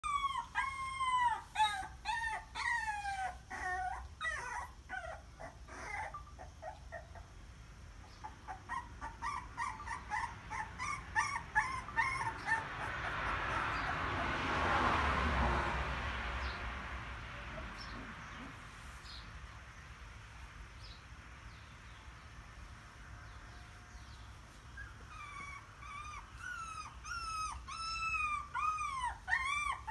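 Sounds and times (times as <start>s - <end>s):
puppies whimpering and crying: 0.0s - 7.4s, 8.1s - 14.6s, 24.5s - 29.9s.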